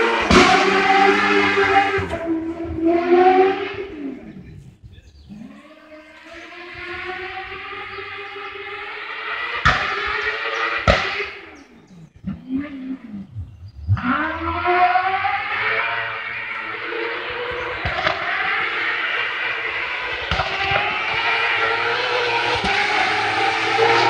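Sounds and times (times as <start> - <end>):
sharp bangs: 0.0 - 3.8, 6.8 - 11.5
racing car engines: 0.0 - 24.0.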